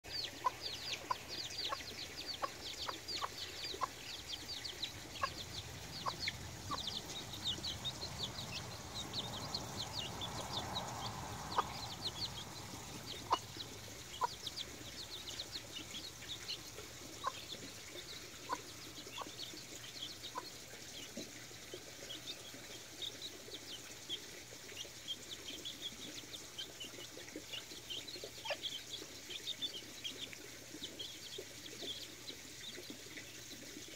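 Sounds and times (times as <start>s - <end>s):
hen clucking: 0.1s - 21.4s
chicks peeping: 0.1s - 33.4s.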